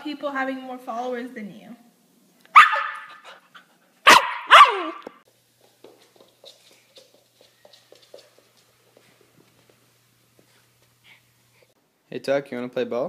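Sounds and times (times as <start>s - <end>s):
dog barking: 2.5s - 3.2s, 4.0s - 5.0s.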